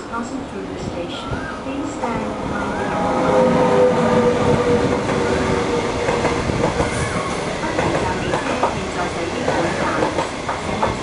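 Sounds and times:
train wheels rumbling on rails: 0.2 - 11.0
steady tone: 1.9 - 6.6.

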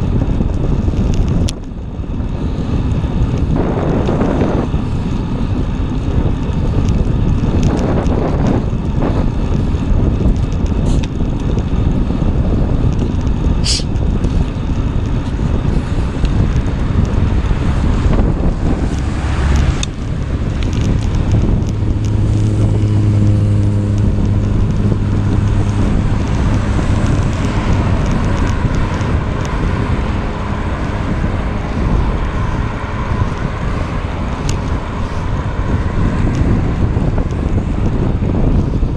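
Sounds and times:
wind on microphone: 0.0 - 38.9
car traffic passing: 13.5 - 38.9.

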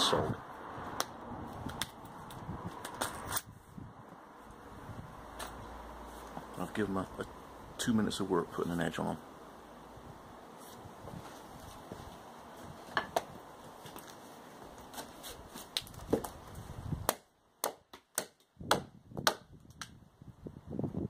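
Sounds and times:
hatchet chopping wood: 17.0 - 20.0.

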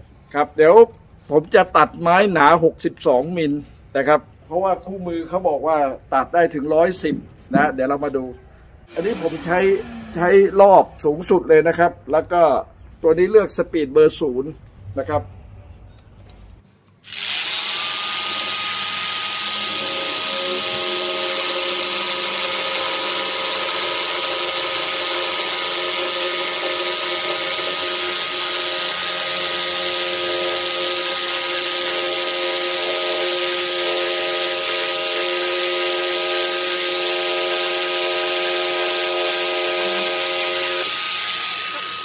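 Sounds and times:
jigsaw cutting wood: 17.0 - 42.0.

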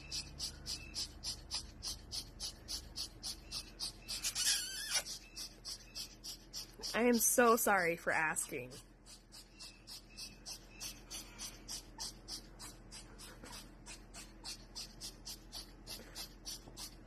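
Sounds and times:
scratchy hissing: 0.0 - 17.0.

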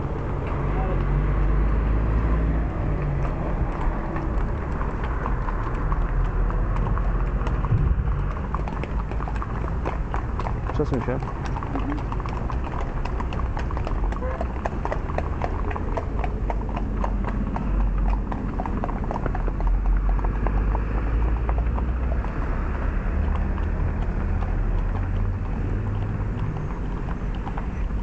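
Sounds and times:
hooves clip-clopping on pavement: 0.0 - 28.0.

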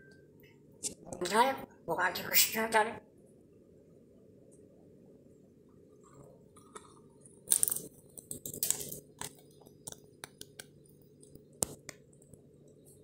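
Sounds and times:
parrot cracking seed shells: 6.7 - 11.8.

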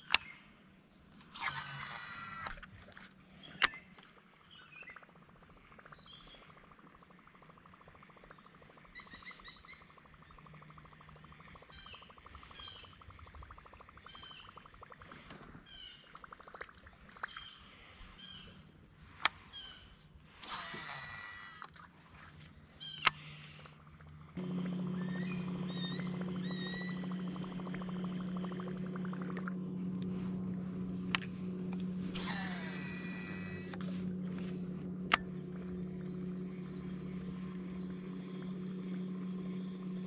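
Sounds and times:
fishing reel whirring: 1.3 - 2.7, 20.3 - 21.9, 22.9 - 40.0
small birds chirping: 3.4 - 16.4, 17.1 - 21.6, 22.4 - 40.0
sharp clicks: 35.1 - 35.3.

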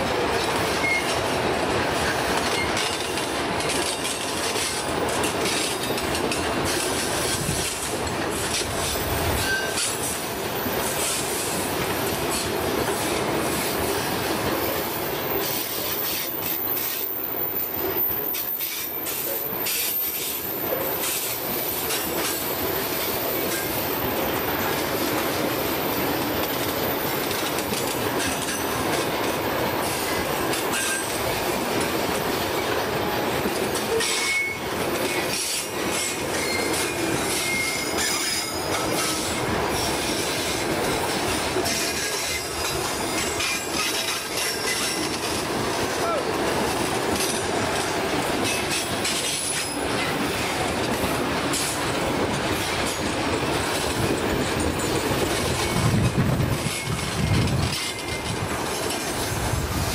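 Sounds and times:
train wheels rumbling on rail: 0.0 - 59.9
high wheel squeals: 9.4 - 9.9, 35.9 - 39.5.

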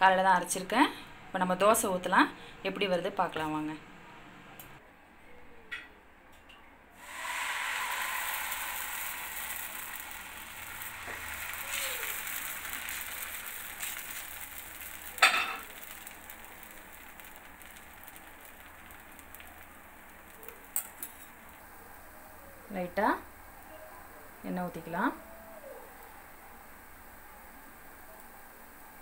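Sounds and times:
batter sizzling on hot pan: 7.0 - 29.0.

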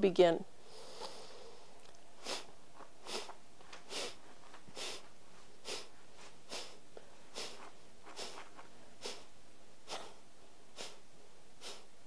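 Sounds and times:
forceful nasal exhales: 0.6 - 4.2, 4.8 - 5.0, 5.6 - 5.9, 6.5 - 8.4, 9.0 - 9.3, 9.9 - 11.0, 11.6 - 11.9.

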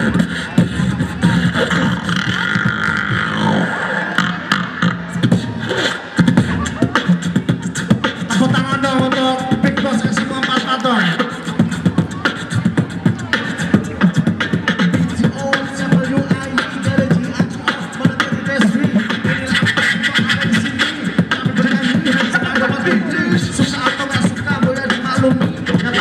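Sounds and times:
group beatboxing: 0.0 - 26.0
pitched vocal line: 0.0 - 26.0.

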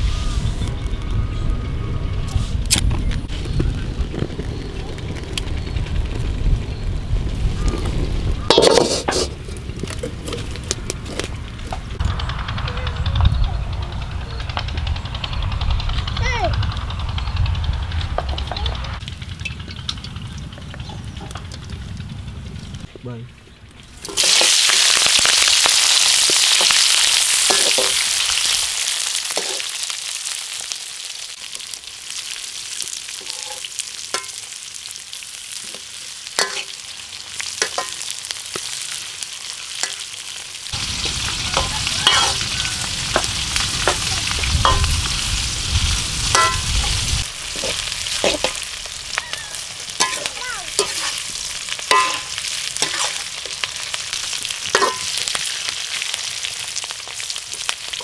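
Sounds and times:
metal ladle scraping a wok: 8.5 - 11.3, 26.4 - 28.2, 29.3 - 29.7, 33.1 - 34.4, 36.4 - 36.8, 37.6 - 38.7, 40.9 - 45.0, 46.3 - 48.6, 49.9 - 54.0, 54.6 - 55.6
low rumble: 9.4 - 23.4, 40.7 - 49.2
vegetables sizzling in hot oil: 23.8 - 58.0.

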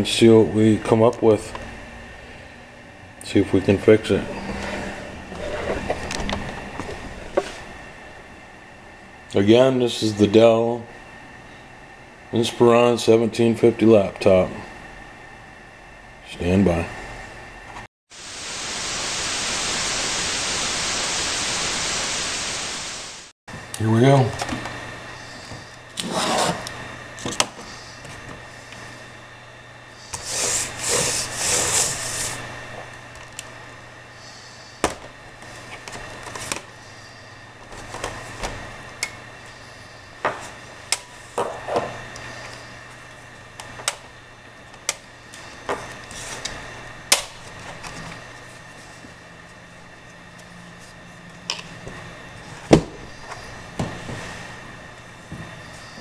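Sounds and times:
laptop scraping on mat: 4.4 - 6.0.

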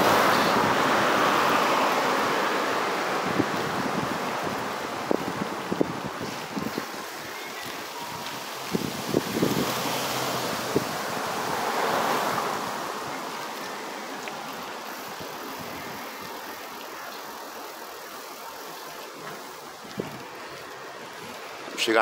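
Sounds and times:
car passing close by: 0.0 - 4.9, 8.5 - 14.6
wind on microphone: 3.0 - 7.2, 8.0 - 13.2, 19.8 - 20.6.

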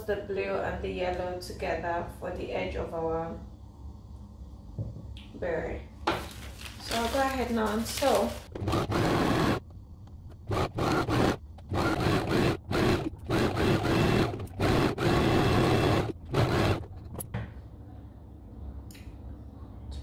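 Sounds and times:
sewing machine stitching: 8.5 - 9.6, 10.4 - 17.1.

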